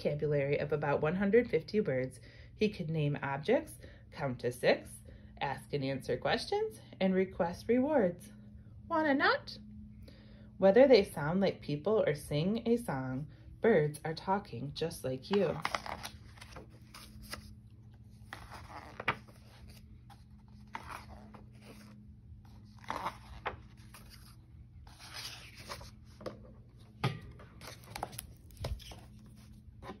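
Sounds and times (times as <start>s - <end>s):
low steady hum: 0.0s - 30.0s
book pages turning and rustling: 15.3s - 26.9s, 27.6s - 30.0s.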